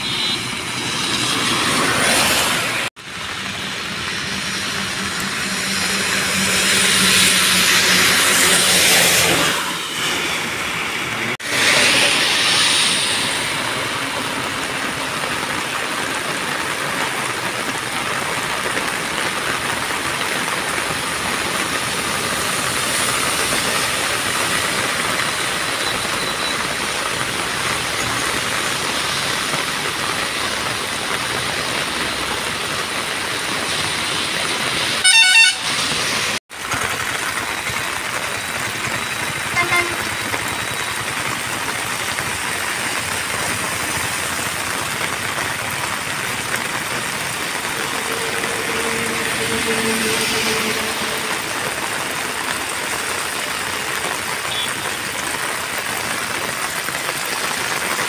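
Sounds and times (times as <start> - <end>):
vehicle horn: 0.0 - 0.6, 35.0 - 35.9, 39.5 - 40.2, 47.8 - 51.6
heavy rain on road: 0.0 - 58.0
traffic splashing through water: 0.0 - 58.0.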